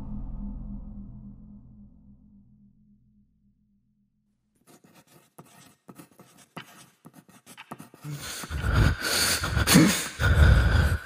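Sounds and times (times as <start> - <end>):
pen scratching on paper: 4.6 - 10.0
loud breathy sound: 8.0 - 11.0.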